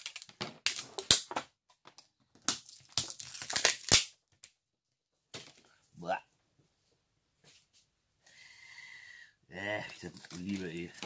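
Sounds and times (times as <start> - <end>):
plastic sheeting crackling and tearing: 2.5 - 4.1, 9.9 - 11.0.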